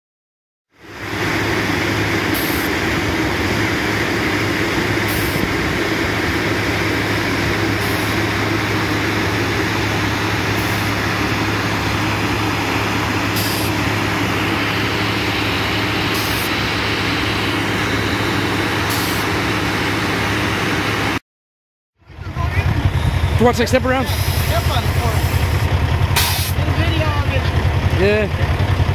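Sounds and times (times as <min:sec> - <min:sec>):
diesel engine running: 0:00.7 - 0:21.2, 0:22.0 - 0:28.9
short high sound: 0:13.0 - 0:19.4.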